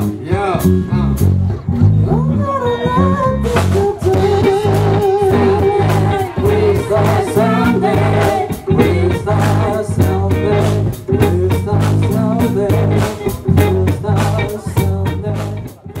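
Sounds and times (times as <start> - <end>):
guitar: 0.0 - 16.0
low bass line: 0.0 - 16.0
voices singing: 2.1 - 16.0
drum kit beat: 3.4 - 16.0.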